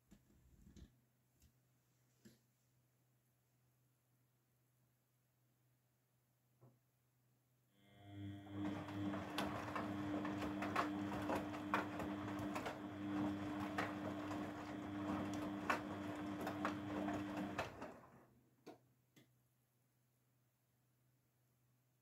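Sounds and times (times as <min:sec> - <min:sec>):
washing machine motor hum: 0:07.8 - 0:18.2
water sloshing and laundry tumbling: 0:08.5 - 0:18.1.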